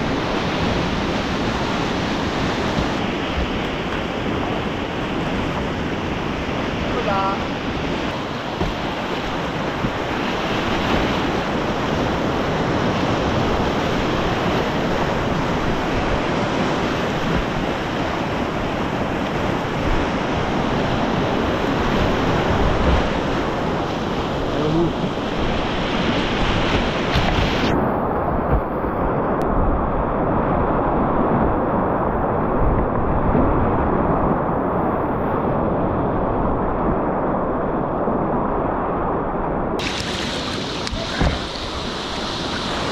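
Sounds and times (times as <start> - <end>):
whitewater rapids rushing: 0.0 - 27.7, 39.8 - 42.9
water washing over microphone: 39.8 - 42.9.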